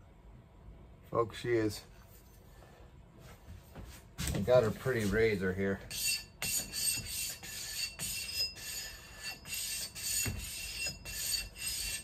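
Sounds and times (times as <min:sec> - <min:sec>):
axe being sharpened: 0:06.0 - 0:12.0.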